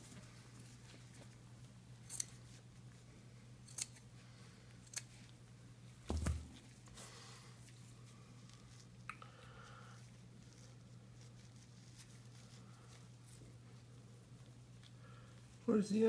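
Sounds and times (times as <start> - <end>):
scissors snipping: 4.8 - 5.2.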